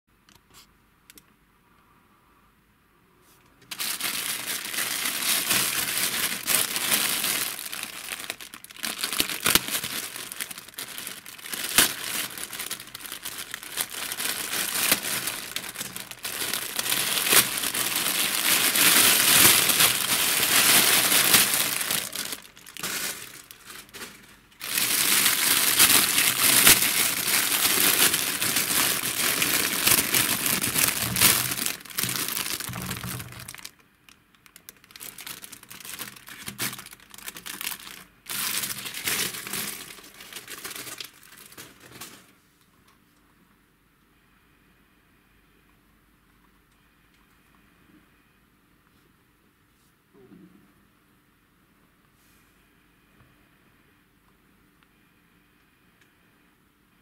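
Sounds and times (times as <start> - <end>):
plastic bag crinkling: 3.6 - 42.4.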